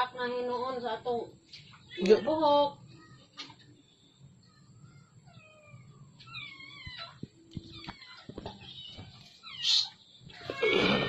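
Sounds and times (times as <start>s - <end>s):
small pet crying: 5.2s - 11.0s.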